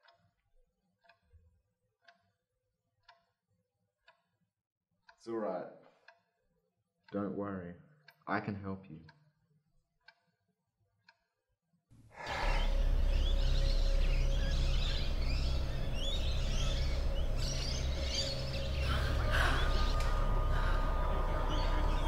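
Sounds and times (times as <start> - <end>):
birds chirping: 12.2 - 22.0
faint clicks: 12.2 - 22.0
steady low rumble: 12.3 - 22.0.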